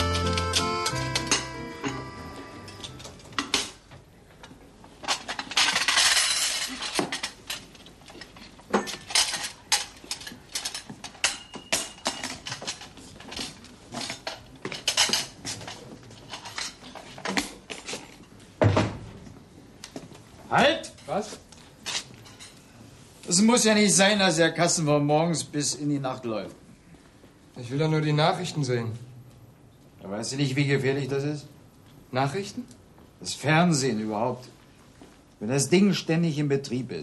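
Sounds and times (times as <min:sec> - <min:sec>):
crockery and cutlery clinking: 0:00.0 - 0:03.8, 0:05.0 - 0:18.4.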